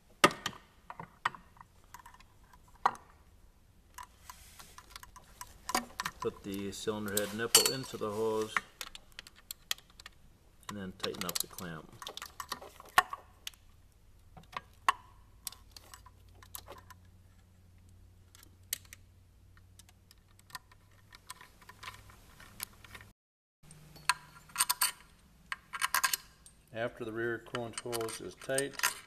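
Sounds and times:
metal parts clinking: 0:23.9 - 0:26.7, 0:27.7 - 0:29.0.

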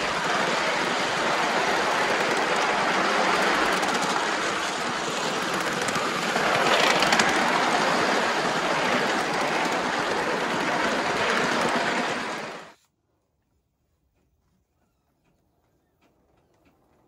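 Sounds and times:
steam locomotive running on track: 0:00.0 - 0:12.8.

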